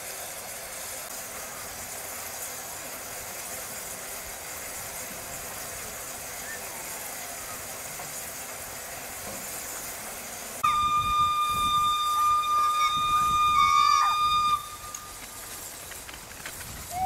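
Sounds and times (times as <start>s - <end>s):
steady background hiss: 0.0s - 17.0s
steam locomotive whistle: 10.6s - 15.2s.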